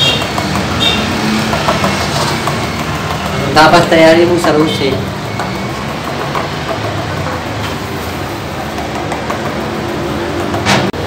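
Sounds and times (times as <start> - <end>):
sharp knock: 10.5 - 11.0.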